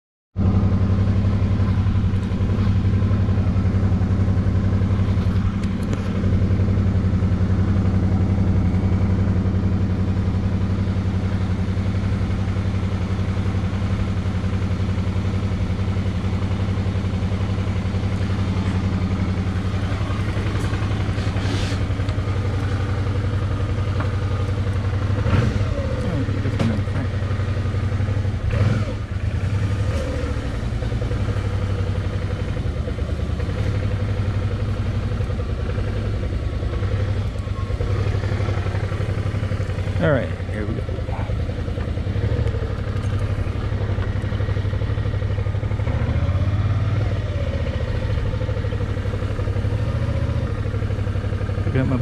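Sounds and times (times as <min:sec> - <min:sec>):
motorcycle engine running: 0:00.4 - 0:52.0.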